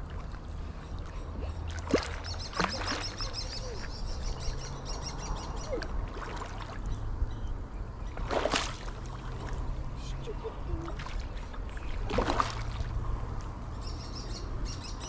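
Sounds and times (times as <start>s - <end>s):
fish splashing in water: 0.0s - 3.9s, 5.6s - 7.0s, 8.1s - 9.9s, 10.8s - 13.1s
bird twittering: 0.8s - 5.8s.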